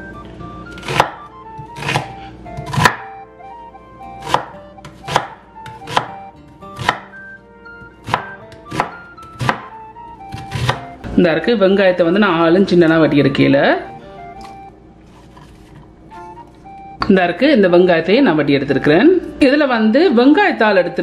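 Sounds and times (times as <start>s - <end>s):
knife chopping on wooden board: 0.8s - 3.1s, 4.2s - 7.2s, 8.0s - 10.9s.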